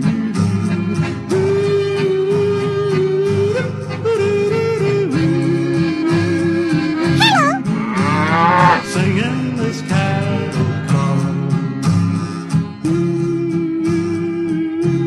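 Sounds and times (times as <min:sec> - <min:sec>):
country music with guitar and bass: 0:00.0 - 0:15.0
cow mooing: 0:07.0 - 0:09.0.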